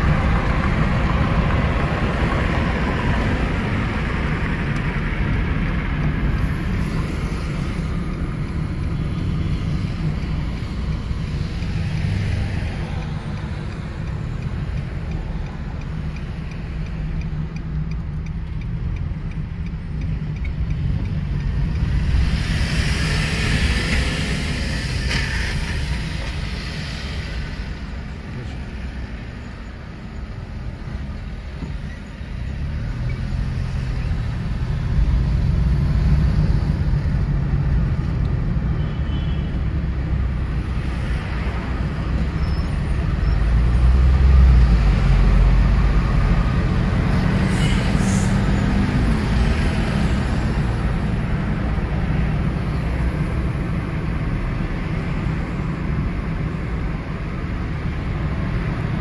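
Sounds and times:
car engine: 0.0s - 38.6s.

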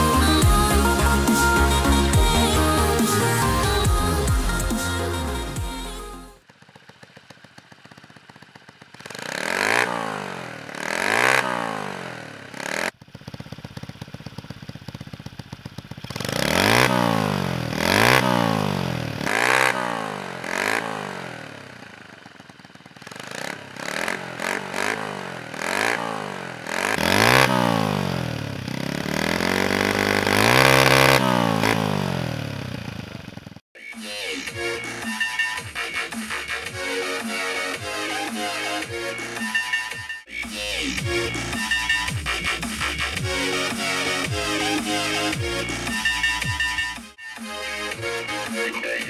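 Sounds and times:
motorbike engine revving: 0.0s - 33.6s, 34.3s - 47.2s.

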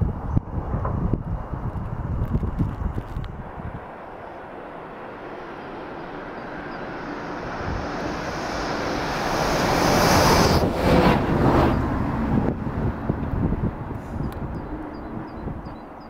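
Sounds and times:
electric train passing rumble: 3.2s - 16.0s.

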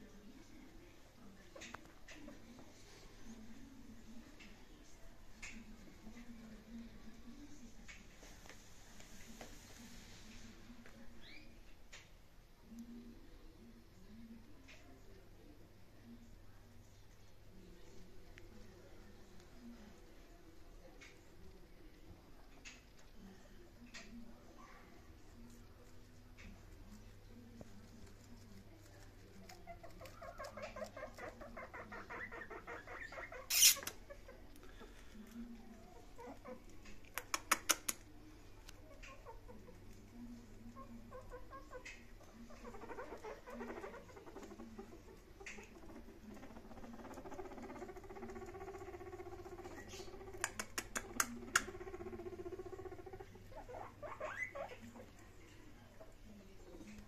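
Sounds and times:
guinea pig rumbling purr: 0.0s - 11.6s, 12.3s - 57.0s
guinea pig squeaky chirps: 29.4s - 34.3s, 38.8s - 55.2s.

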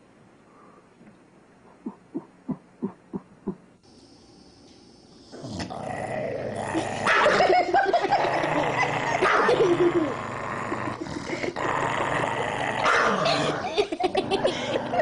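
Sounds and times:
dog growling and whining: 5.3s - 15.0s.

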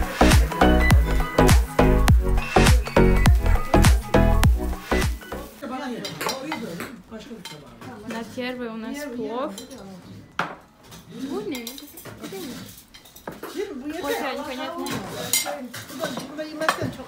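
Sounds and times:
pop music with heavy beat: 0.0s - 5.4s
indistinct voices: 0.0s - 5.5s
plates and cutlery clinking: 4.9s - 8.5s, 9.4s - 17.0s.

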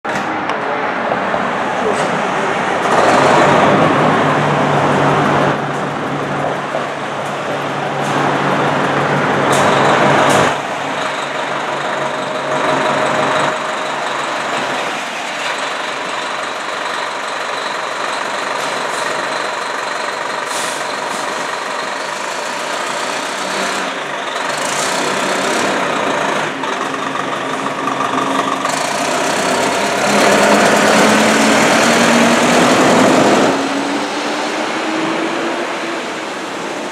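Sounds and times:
diesel engine running: 2.0s - 34.8s
air brakes hissing: 20.4s - 22.4s.

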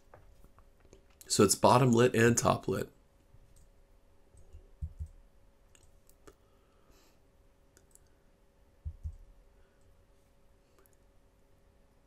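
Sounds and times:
faint steady hum: 0.0s - 12.0s
faint clicks: 4.4s - 6.4s, 7.7s - 8.2s.

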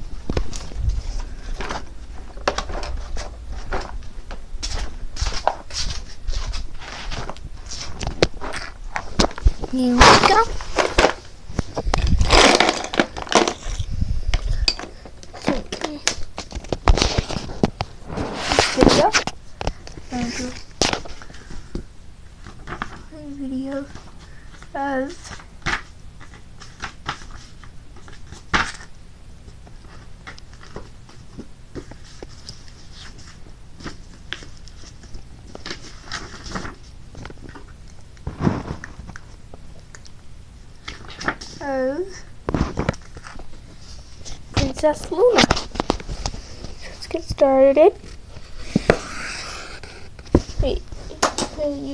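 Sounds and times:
knitted fabric rubbing on microphone: 17.2s - 19.1s, 48.5s - 50.7s.

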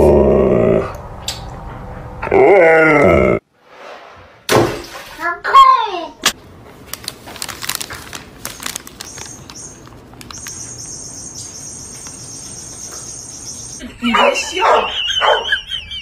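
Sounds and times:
paper bag crackling: 6.7s - 10.7s
crickets chirping: 8.6s - 13.8s.

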